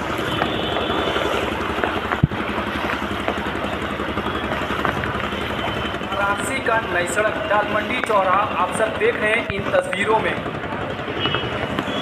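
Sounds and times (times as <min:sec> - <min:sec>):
heavy rain on flooded street: 0:00.0 - 0:07.0
vehicle engine running: 0:00.0 - 0:12.0.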